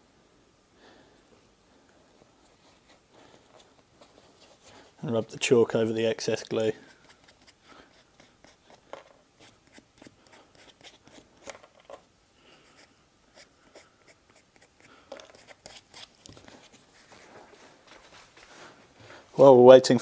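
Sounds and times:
chalk scratching on rubber: 0:06.8 - 0:08.8, 0:09.4 - 0:11.3, 0:12.6 - 0:17.2.

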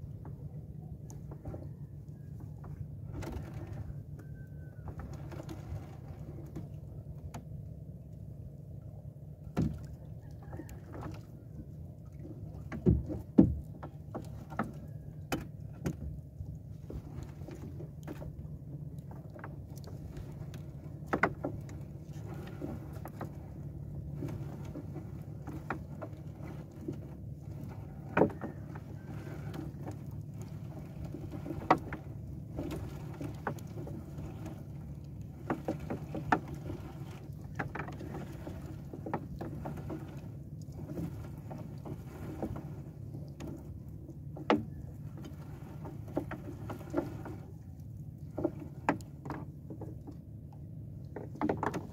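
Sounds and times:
steady low hum: 0:00.0 - 0:51.9
net knocking against boat hull: 0:12.8 - 0:14.0.

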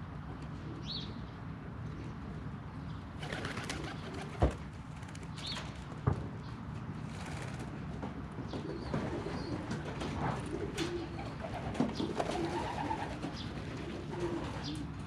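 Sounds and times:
pigeons cooing: 0:03.2 - 0:04.5, 0:08.5 - 0:15.0.

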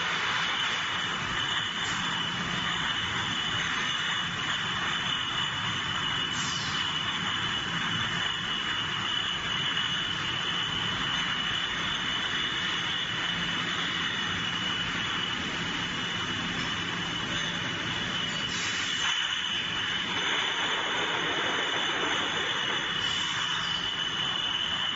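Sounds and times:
bottle conveyor machine running: 0:00.0 - 0:24.9.

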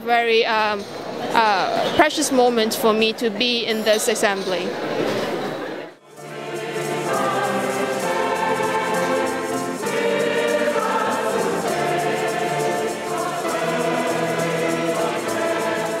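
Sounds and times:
choir singing held chords: 0:06.0 - 0:16.0.

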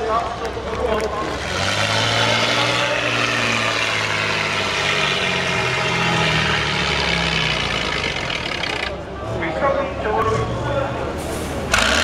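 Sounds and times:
truck engine working under load: 0:00.0 - 0:09.4, 0:10.8 - 0:12.0.

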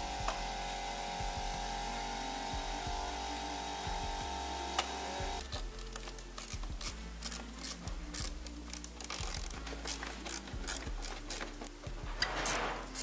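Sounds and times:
hand tool clicking and scraping: 0:04.8 - 0:13.0.

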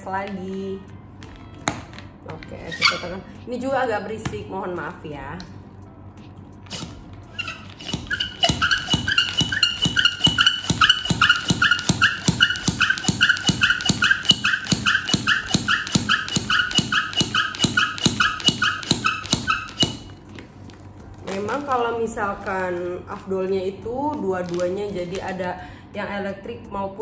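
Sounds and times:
hand pump squeaking: 0:02.6 - 0:03.2, 0:06.7 - 0:20.1.

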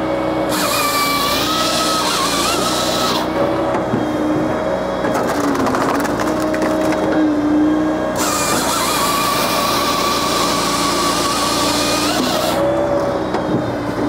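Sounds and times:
saw cutting log: 0:00.0 - 0:04.3, 0:08.1 - 0:13.4
firewood processor running: 0:00.0 - 0:14.0
wood cracking and splintering: 0:05.1 - 0:07.1.

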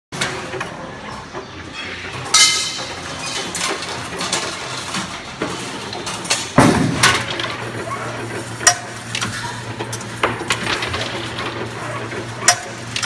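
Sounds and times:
machine clinks and knocks: 0:02.1 - 0:13.0
loud metallic clank: 0:06.4 - 0:07.6.

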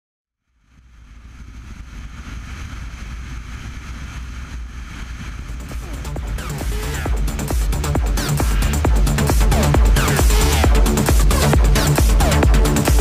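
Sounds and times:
motorcycle engine rumble: 0:00.4 - 0:07.4
wind rushing over microphone: 0:00.4 - 0:11.0.

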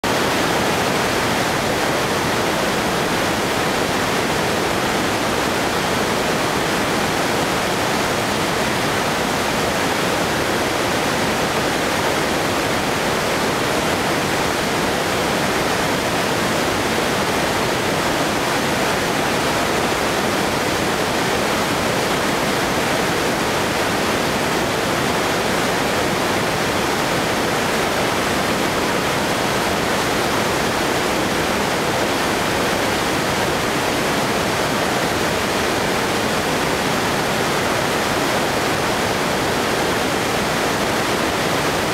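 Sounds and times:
whitewater rushing: 0:00.0 - 0:41.9.

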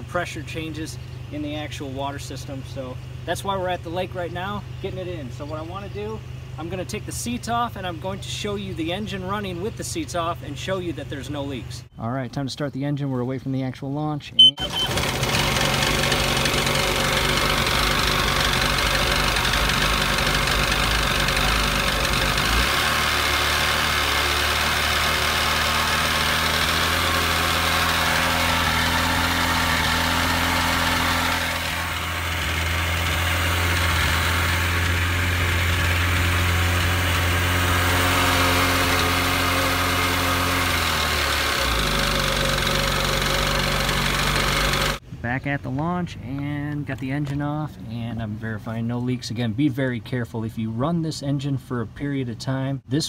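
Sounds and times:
jet ski engine idling: 0:14.4 - 0:45.0.

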